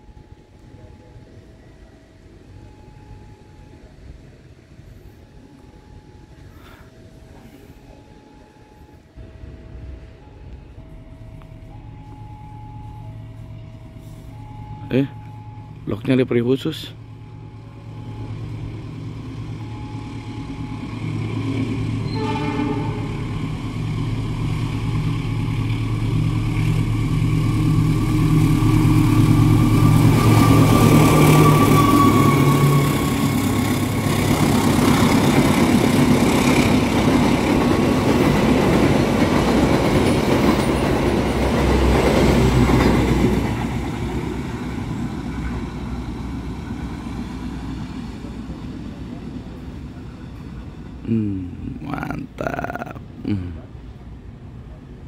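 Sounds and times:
locomotive engine drone: 0:00.0 - 0:55.0
train coaches rumbling past: 0:00.0 - 0:55.0
train horn: 0:22.0 - 0:23.6, 0:28.0 - 0:35.6.

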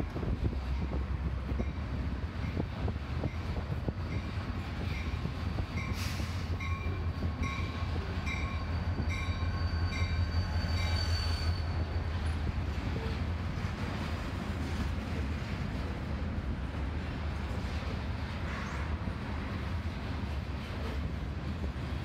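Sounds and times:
freight train rumbling past: 0:00.0 - 0:22.0
high wheel squeaks: 0:08.4 - 0:12.0.

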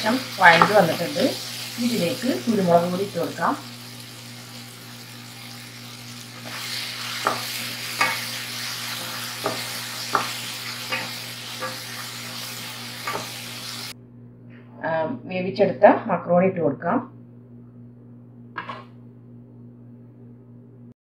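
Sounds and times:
vegetables sizzling in a pan: 0:00.0 - 0:14.0
wooden spatula knocking pan: 0:09.4 - 0:11.8.

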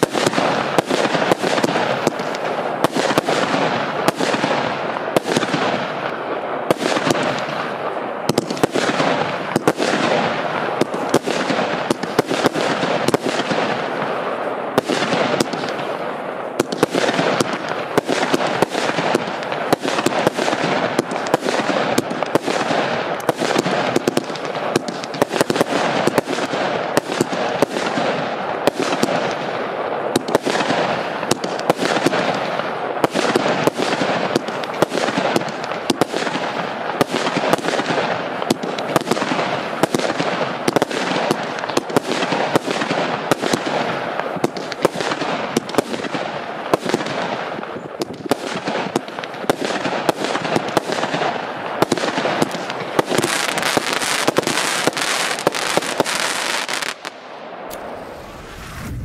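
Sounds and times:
fireworks launching and bursting: 0:00.0 - 0:59.0.

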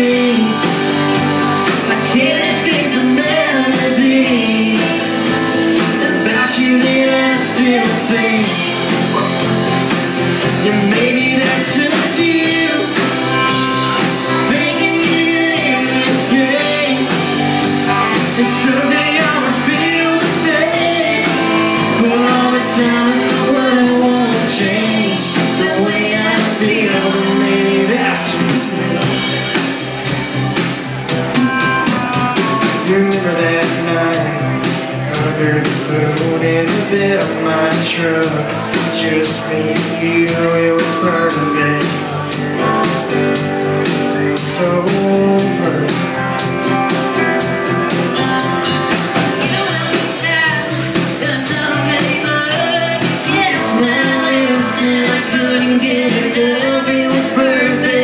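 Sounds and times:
woman singing: 0:00.0 - 0:29.5, 0:49.2 - 0:58.0
live country band playing: 0:00.0 - 0:58.0.

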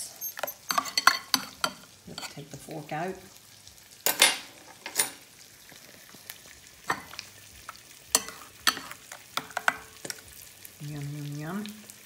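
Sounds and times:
spoon scraping glass bowl: 0:00.0 - 0:02.4
eggs sizzling in butter: 0:00.0 - 0:12.0.

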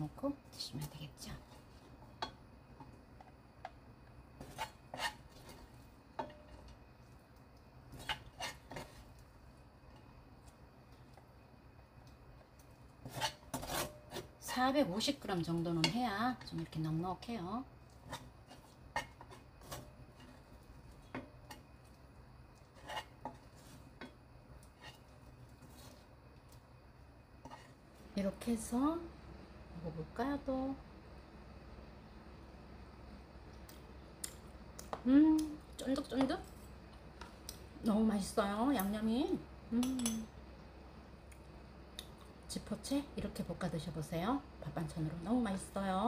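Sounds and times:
spatula scraping a frying pan: 0:04.4 - 0:06.8, 0:07.9 - 0:09.2, 0:13.0 - 0:14.7, 0:18.0 - 0:21.6, 0:22.6 - 0:26.1, 0:27.4 - 0:27.8.

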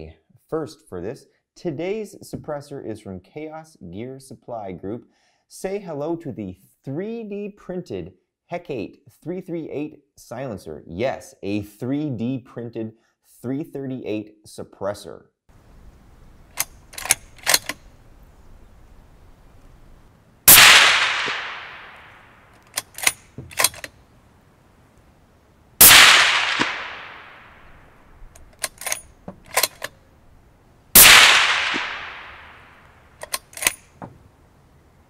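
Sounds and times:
rifle bolt clicks: 0:16.5 - 0:17.9, 0:20.5 - 0:24.0, 0:25.8 - 0:27.6, 0:28.3 - 0:30.0, 0:31.0 - 0:34.0
suppressed rifle shots: 0:20.5 - 0:23.9, 0:25.8 - 0:29.9, 0:31.0 - 0:33.8.

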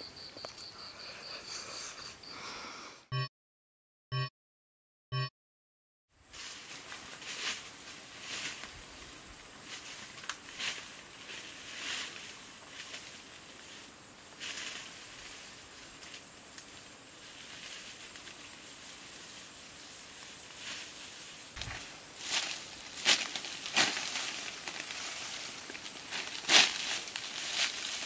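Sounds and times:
footsteps rustling through grass: 0:06.2 - 0:28.0.

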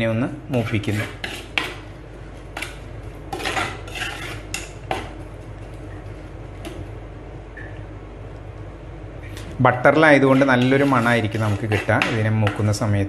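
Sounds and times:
low steady hum: 0:00.0 - 0:13.0
spoon scraping clay pot: 0:00.5 - 0:05.8, 0:10.2 - 0:12.8.

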